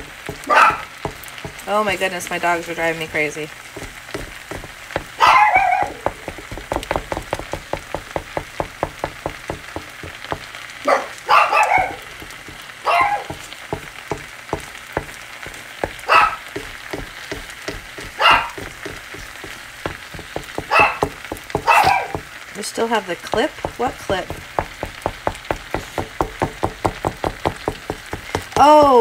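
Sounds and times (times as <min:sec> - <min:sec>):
food frying in a pan: 0:00.0 - 0:29.0
dog barking: 0:00.4 - 0:00.9, 0:05.2 - 0:06.0, 0:10.8 - 0:12.1, 0:12.8 - 0:13.4, 0:16.0 - 0:16.4, 0:18.2 - 0:18.6, 0:20.7 - 0:22.2.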